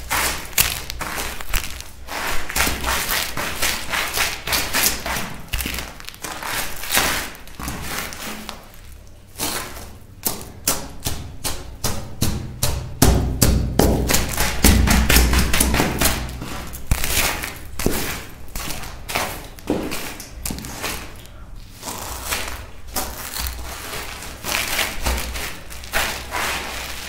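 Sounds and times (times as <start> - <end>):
shards crunching under heels: 0.0 - 10.5.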